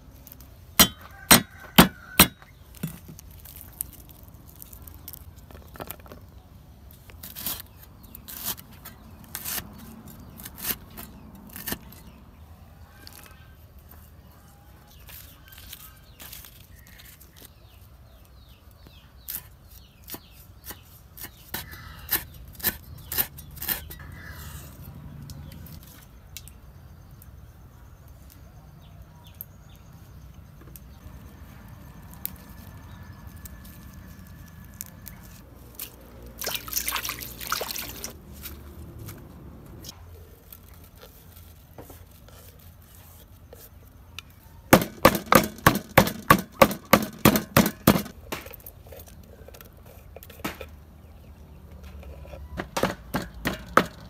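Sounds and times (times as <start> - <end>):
herb leaves rustling: 0.0 - 12.2, 12.8 - 18.0, 31.0 - 44.5
rustling and scraping: 0.0 - 12.2, 12.8 - 26.2, 31.9 - 36.3, 37.7 - 54.0.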